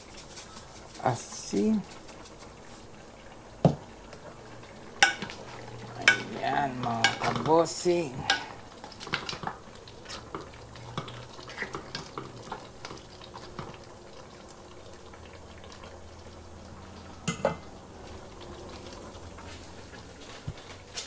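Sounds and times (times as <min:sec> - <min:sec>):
pot bubbling: 0:00.0 - 0:21.0
utensil clinking against pot: 0:05.0 - 0:13.8.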